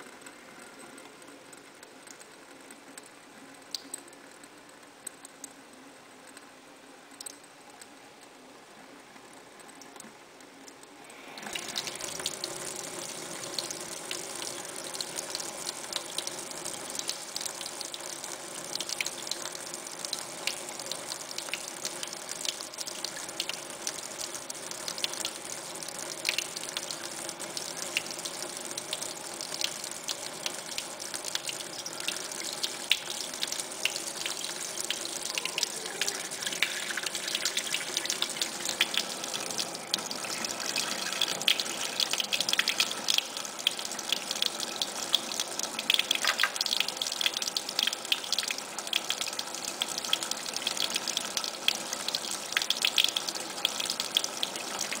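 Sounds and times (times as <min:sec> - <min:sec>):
faucet running into metal sink: 0:11.4 - 0:55.0.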